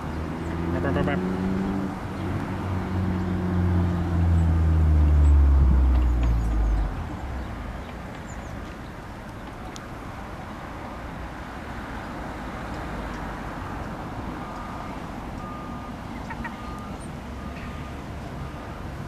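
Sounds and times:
faint beeping tone: 14.4s - 19.0s.

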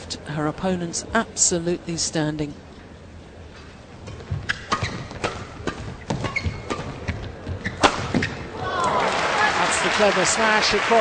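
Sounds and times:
racket striking shuttlecock: 4.1s - 8.4s
shoe squeaks on court: 4.4s - 8.4s.

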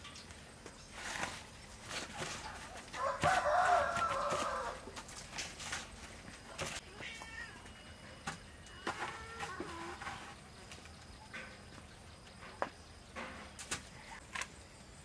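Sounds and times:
breadcrumbs clicking and rustling: 0.8s - 6.8s.

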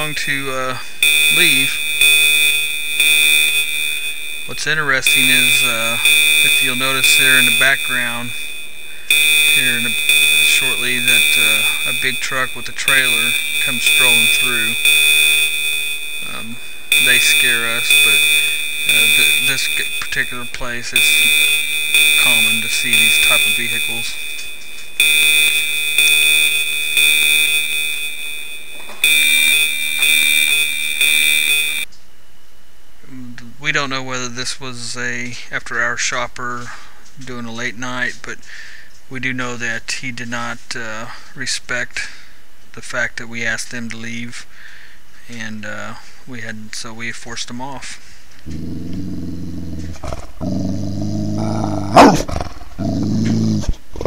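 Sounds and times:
pulsing electronic alarm tone: 0.0s - 31.9s.

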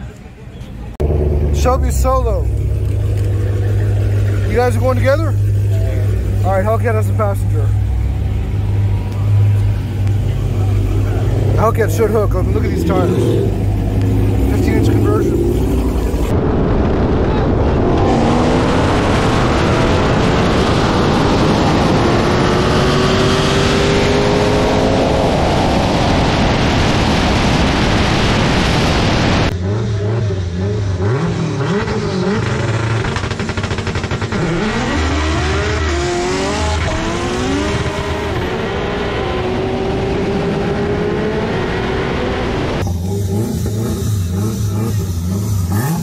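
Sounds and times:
car engines at full throttle: 0.0s - 46.0s
engines revving: 0.9s - 46.0s
heavy wind noise: 8.8s - 29.5s.

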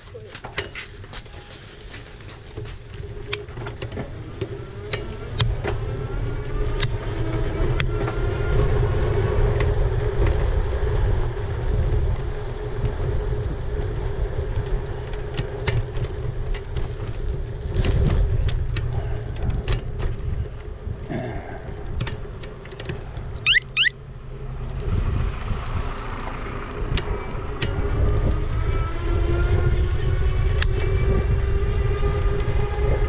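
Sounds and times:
e-bike riding rumble: 0.0s - 33.0s.

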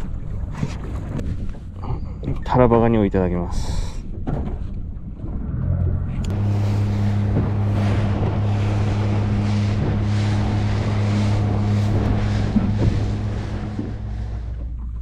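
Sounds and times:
outboard motor droning: 0.0s - 15.0s
water washing along hull: 0.0s - 15.0s
wind buffeting microphone: 4.0s - 15.0s.

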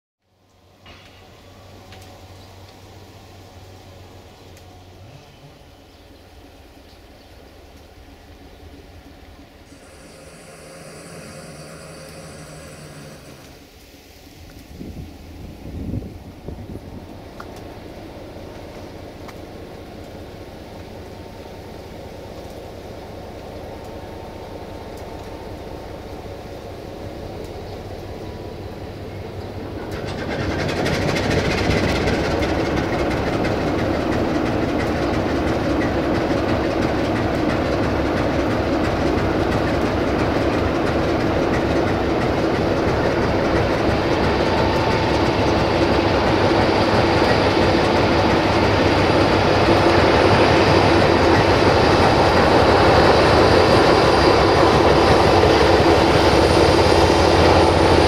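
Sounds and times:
locomotive engine hum: 0.3s - 58.0s
wagons clattering over rail joints: 29.3s - 58.0s.

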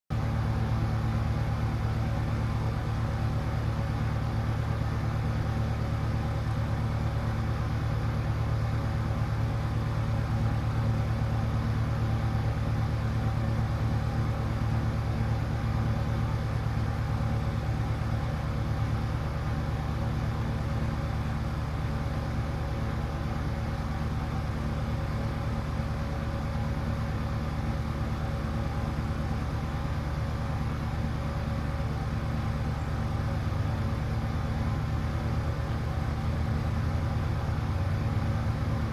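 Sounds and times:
low mechanical hum: 0.1s - 38.9s.

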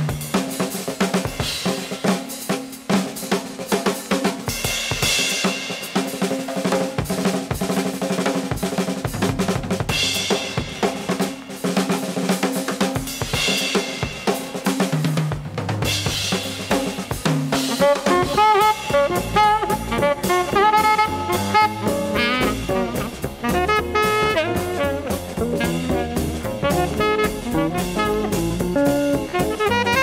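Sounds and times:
cymbals: 0.0s - 30.0s
snare drum: 0.0s - 30.0s
bass drum: 8.5s - 11.1s, 15.0s - 30.0s
jazz from vinyl record: 16.4s - 30.0s
bass line: 17.7s - 30.0s.

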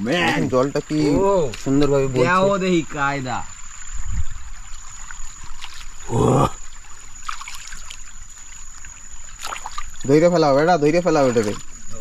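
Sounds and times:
water trickling in a creek: 0.0s - 12.0s.

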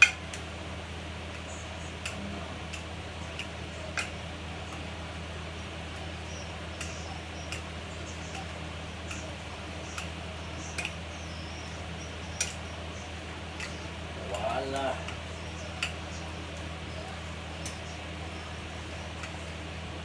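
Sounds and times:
induction hob humming: 0.0s - 20.0s
light sharp ticks: 6.8s - 8.5s, 9.9s - 11.0s.

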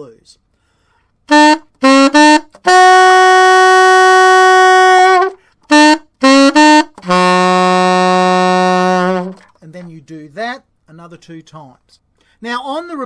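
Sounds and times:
alto saxophone blues riff: 1.2s - 9.6s.

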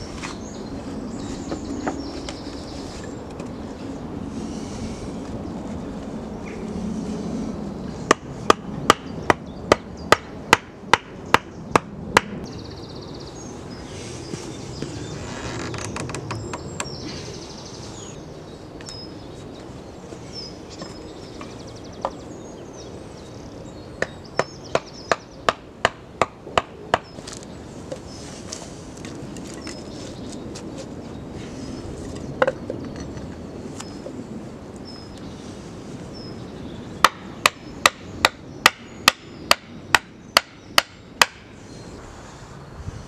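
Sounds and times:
hatchet knocking wooden stakes: 8.1s - 12.4s, 24.0s - 27.1s, 37.0s - 41.5s.

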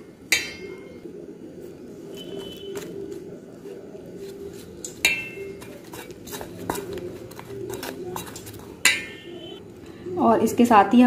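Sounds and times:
metal spoon stirring batter in bowl: 4.0s - 9.6s
spoon clinking against metal bowl: 4.8s - 9.6s.

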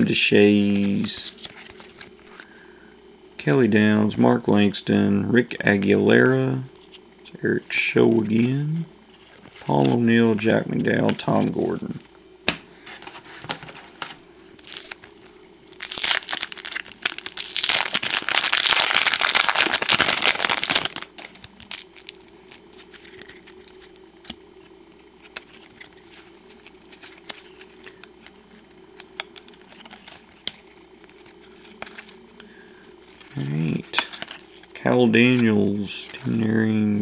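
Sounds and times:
wrapper crinkling: 14.6s - 23.9s
cards clicking and rustling: 15.8s - 32.5s, 33.1s - 36.4s.

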